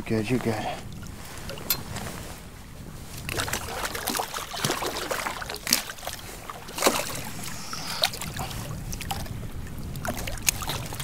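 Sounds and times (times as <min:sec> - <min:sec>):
fish splashing at water surface: 0:03.2 - 0:09.3.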